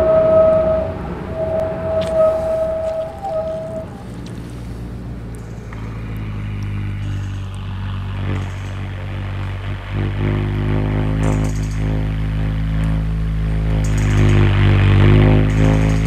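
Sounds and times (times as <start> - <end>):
higher electronic tones: 0.0 - 4.2
low droning electronic hum: 0.0 - 16.0
faint clicks: 1.5 - 7.7.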